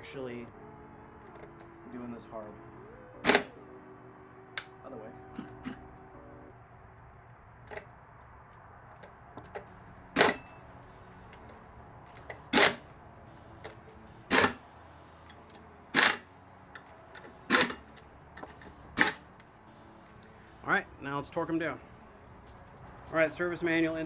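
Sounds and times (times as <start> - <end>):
air impact wrench bursts: 12.2 - 14.6, 15.2 - 16.3, 17.4 - 17.8, 18.6 - 19.3.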